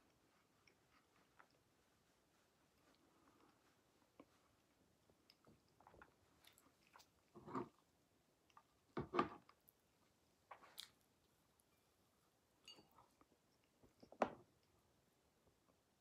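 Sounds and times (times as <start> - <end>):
person chewing: 0.1 - 1.7.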